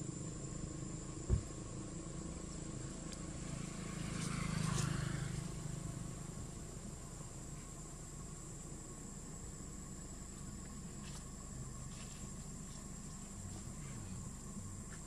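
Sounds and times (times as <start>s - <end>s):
high insect drone: 0.0s - 15.0s
dull low thump: 1.2s - 1.8s.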